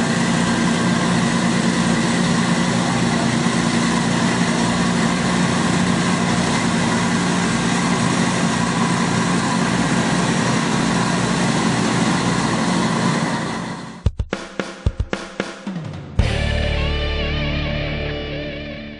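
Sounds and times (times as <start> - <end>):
machine engine running: 0.0 - 14.1.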